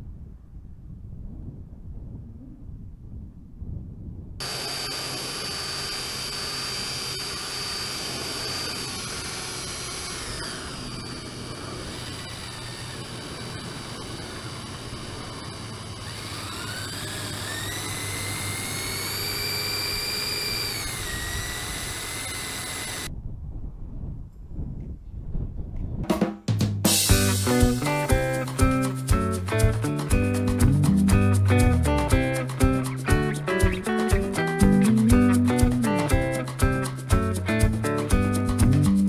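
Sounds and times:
electric motors whining: 0:04.4 - 0:23.1.

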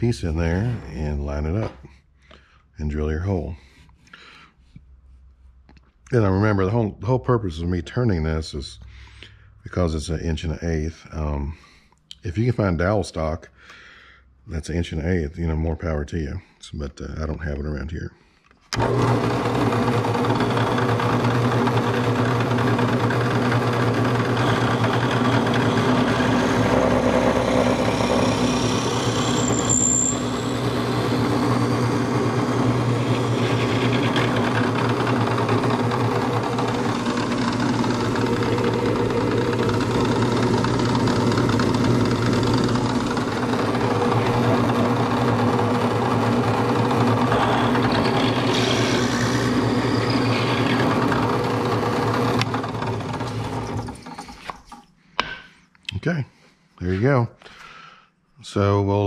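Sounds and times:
drill press boring wood: 0:18.7 - 0:54.8
high squeak: 0:28.2 - 0:32.4, 0:47.2 - 0:51.2.

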